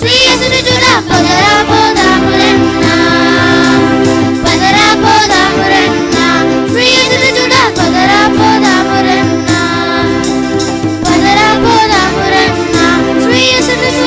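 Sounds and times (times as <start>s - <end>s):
held instrumental backing: 0.0s - 14.0s
person singing: 11.1s - 14.0s.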